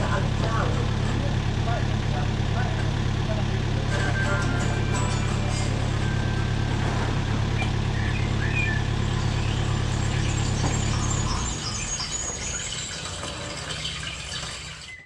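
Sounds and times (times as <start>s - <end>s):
vehicle engine idling: 0.0s - 14.8s.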